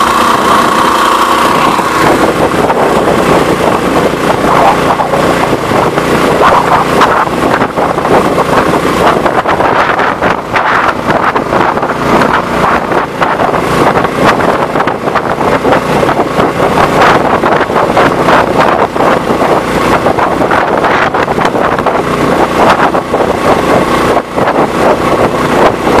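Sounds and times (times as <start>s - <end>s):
boat motor running: 0.0s - 26.0s
wind buffeting microphone: 0.0s - 26.0s.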